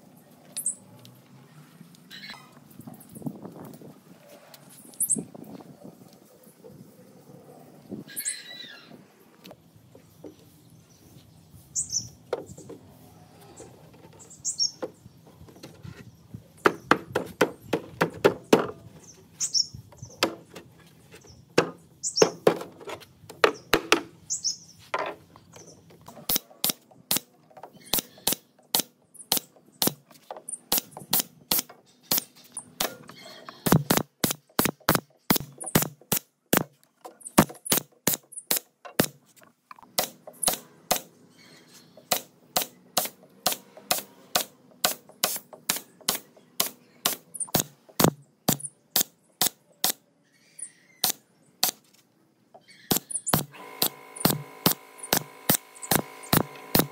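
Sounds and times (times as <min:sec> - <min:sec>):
birds chirping: 0:04.8 - 0:36.0, 0:39.7 - 0:44.0, 0:44.6 - 0:51.8, 0:52.4 - 0:56.9
wooden boards knocking: 0:21.6 - 0:24.1
nail gun shots: 0:26.3 - 0:27.3, 0:27.9 - 0:30.0, 0:30.7 - 0:33.0, 0:33.7 - 0:36.7, 0:37.4 - 0:39.2, 0:39.9 - 0:41.1, 0:42.0 - 0:50.0, 0:51.0 - 0:51.8, 0:52.9 - 0:56.9.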